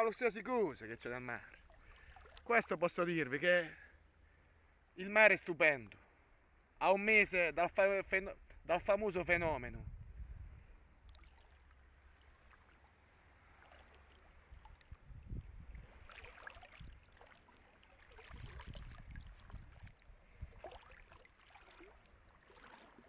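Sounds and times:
sea water lapping at shore: 0:01.0 - 0:03.4, 0:10.8 - 0:23.0
waves splashing: 0:11.1 - 0:15.0, 0:15.7 - 0:23.0.

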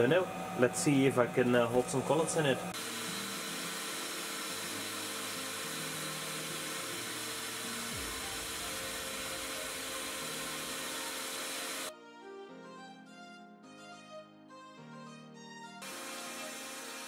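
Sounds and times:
router spindle whining and cutting: 0:00.0 - 0:11.9, 0:15.8 - 0:17.0.

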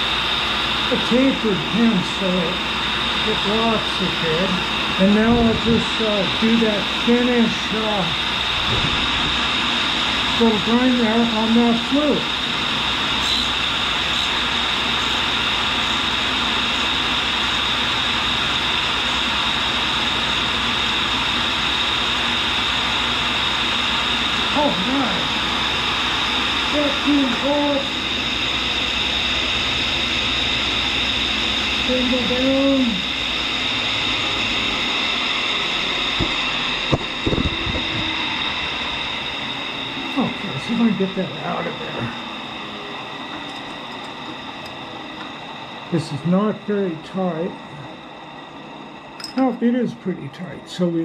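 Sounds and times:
grinder hissing and whining: 0:00.0 - 0:51.0
sharp metal clicks and clunks: 0:49.2 - 0:49.5.

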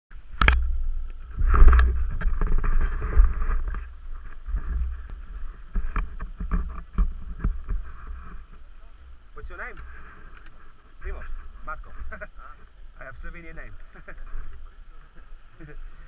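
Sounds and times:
wind rumble on microphone: 0:00.2 - 0:16.0
skis sliding over snow: 0:01.2 - 0:08.8.

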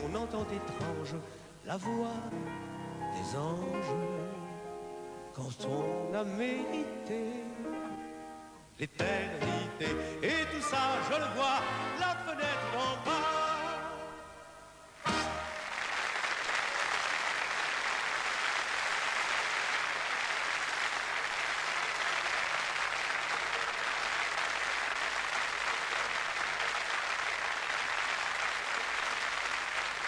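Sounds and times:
audience applauding: 0:15.0 - 0:30.0.

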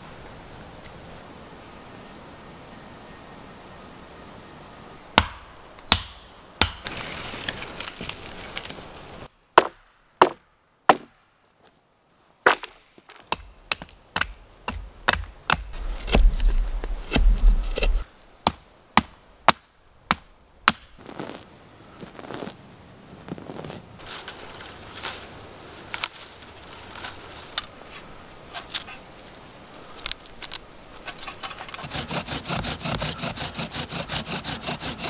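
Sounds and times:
hatchet chopping dry wood: 0:05.2 - 0:07.0, 0:09.6 - 0:11.2, 0:12.5 - 0:21.0, 0:31.8 - 0:35.0.

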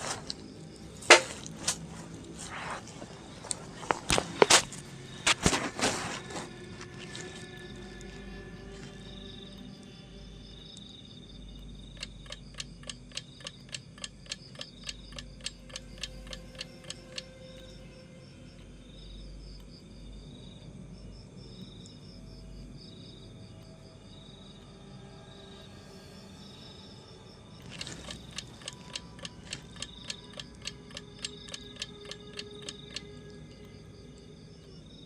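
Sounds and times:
night insects chirping: 0:00.0 - 0:35.0
sharp evenly spaced ticks: 0:10.6 - 0:18.0, 0:26.3 - 0:35.0.

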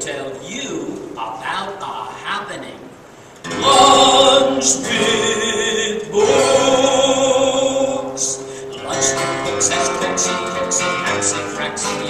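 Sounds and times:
acoustic guitar strumming: 0:03.4 - 0:12.0
man singing long notes: 0:03.5 - 0:12.0.

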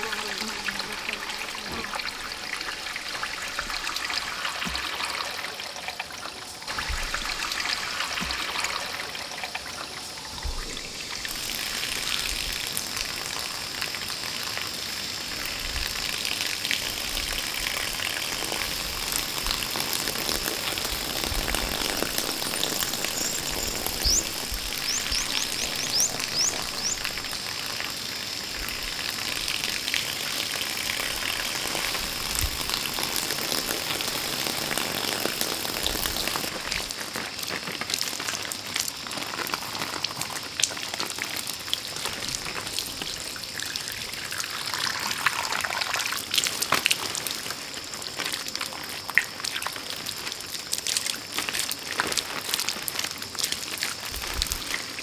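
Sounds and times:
water splashing on rocks: 0:06.7 - 0:09.2.

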